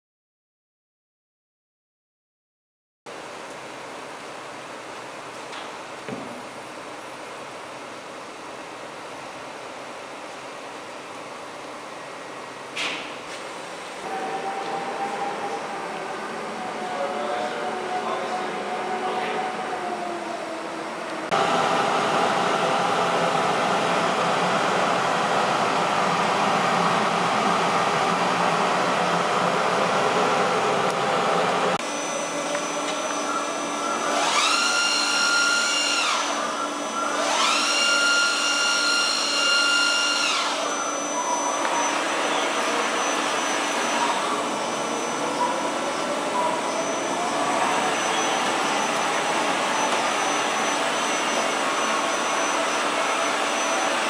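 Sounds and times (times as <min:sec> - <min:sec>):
machine drives whining: 0:14.0 - 0:54.0.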